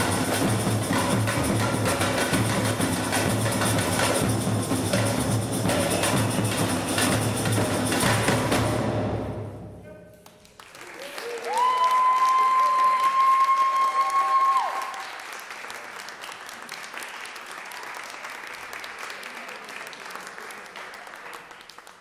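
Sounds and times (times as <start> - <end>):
audience applauding: 10.2 - 22.0.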